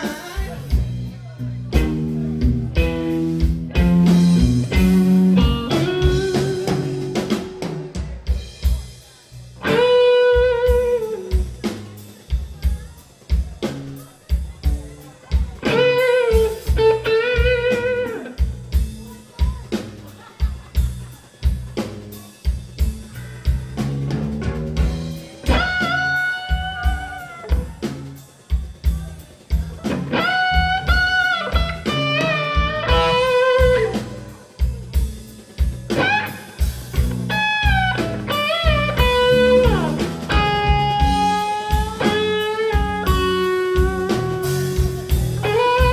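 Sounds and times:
bass guitar: 0.0s - 45.9s
drum kit: 0.0s - 45.9s
electric guitar solo: 1.8s - 7.9s, 9.6s - 11.4s, 15.6s - 18.4s, 25.4s - 27.7s, 29.8s - 34.3s, 36.0s - 45.9s.

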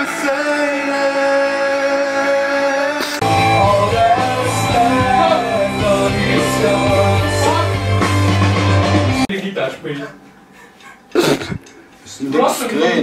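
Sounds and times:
person singing: 0.0s - 8.2s
electric guitar: 0.0s - 9.3s
heavy bass line: 3.2s - 9.3s.

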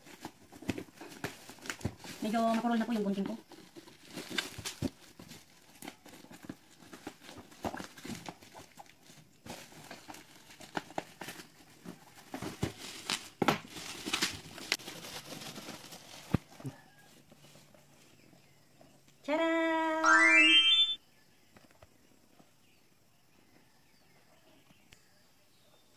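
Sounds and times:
plastic wrapping crinkling and tearing: 3.5s - 11.4s, 12.2s - 16.5s.

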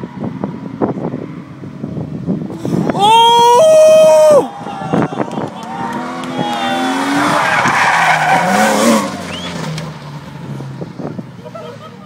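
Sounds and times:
car engine revving: 5.2s - 11.2s
tyres squealing: 6.4s - 9.8s.

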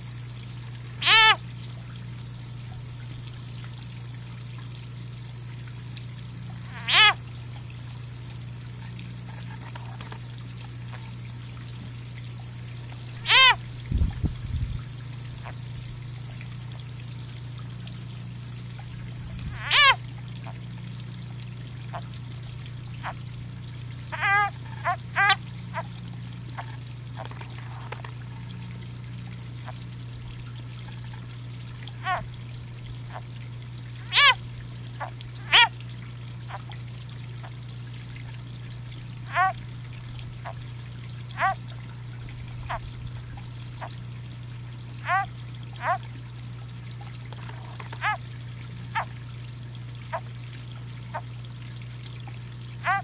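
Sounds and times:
frog distress screams: 1.0s - 1.4s, 6.6s - 7.2s, 13.1s - 13.7s, 19.4s - 20.1s, 24.0s - 25.8s, 31.9s - 32.3s, 34.0s - 34.4s, 35.0s - 35.8s, 39.2s - 39.6s, 41.3s - 41.6s, 42.6s - 42.9s, 45.0s - 46.0s, 47.4s - 48.2s.

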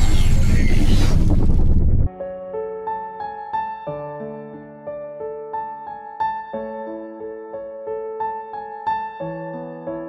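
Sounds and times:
soft keyboard melody: 2.1s - 10.0s.

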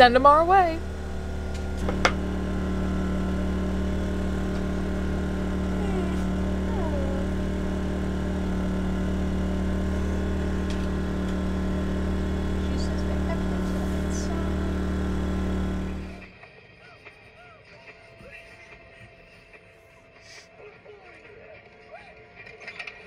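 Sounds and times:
generator engine running: 0.0s - 16.3s.

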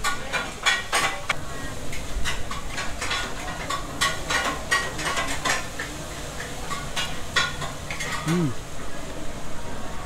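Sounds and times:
cutlery clinking on a plate: 0.0s - 1.4s, 2.2s - 8.4s.

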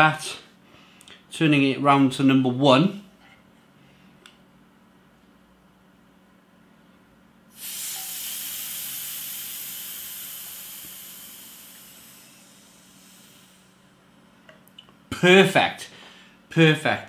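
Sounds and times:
gas hissing from keg vent: 7.5s - 14.0s.

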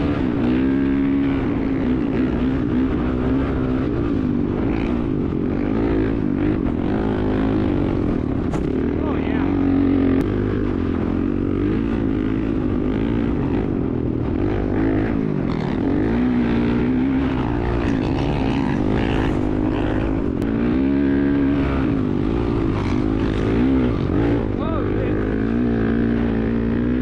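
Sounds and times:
dirt bike engine revving: 0.0s - 27.0s.

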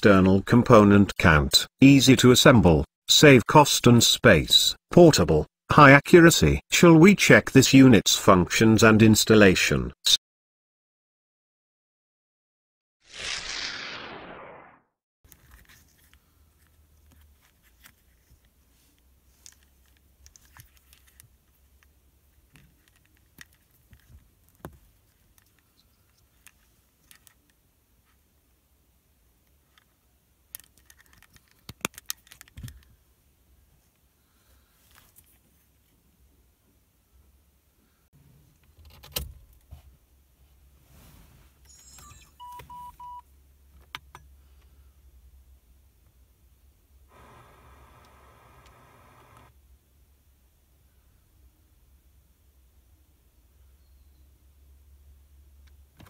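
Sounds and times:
plastic connectors clicking: 30.5s - 32.9s
car radio short beeps: 41.7s - 43.2s
radio hiss: 47.1s - 49.5s.

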